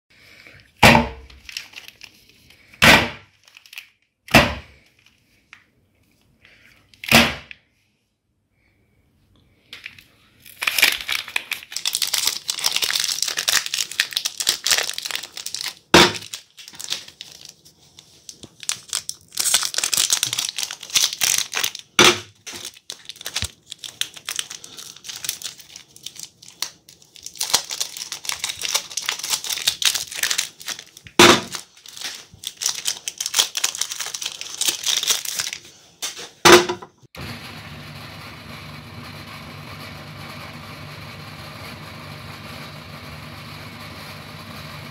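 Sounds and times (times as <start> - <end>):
soap wrappers tearing and crinkling: 0.2 - 5.4, 9.7 - 36.4
meat grinder motor hum: 37.2 - 44.9.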